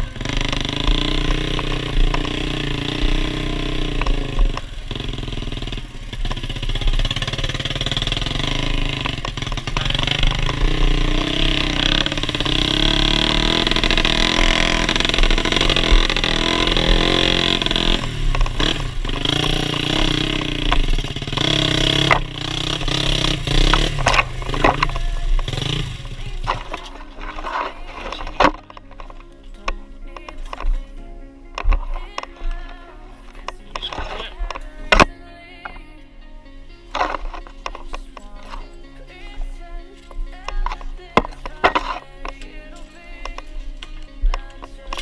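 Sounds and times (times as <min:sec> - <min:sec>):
dirt bike engine revving: 0:00.0 - 0:29.1.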